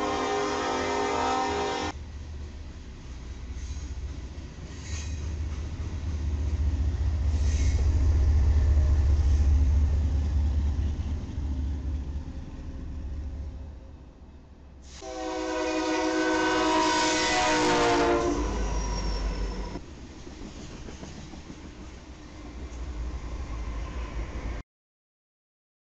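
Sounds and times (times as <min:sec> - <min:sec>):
locomotive air horn: 0:00.0 - 0:02.0, 0:14.8 - 0:19.8
diesel locomotive rumbling: 0:00.0 - 0:24.6
rumble of passing train cars: 0:00.0 - 0:24.6.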